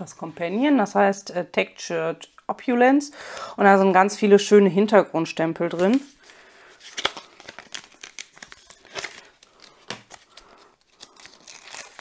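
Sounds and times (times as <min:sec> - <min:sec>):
plastic packaging crinkling: 0:05.9 - 0:12.0.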